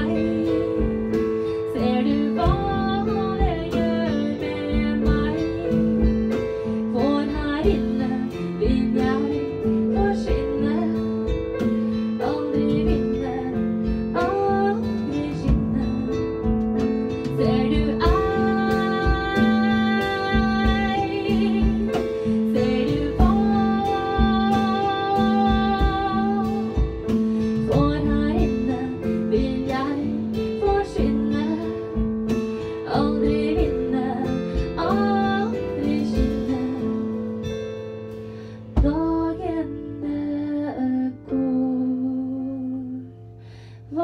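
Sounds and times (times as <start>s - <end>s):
woman singing: 0.0s - 37.8s, 38.5s - 44.0s
drum kit: 0.0s - 40.2s
electric guitar: 0.0s - 40.6s.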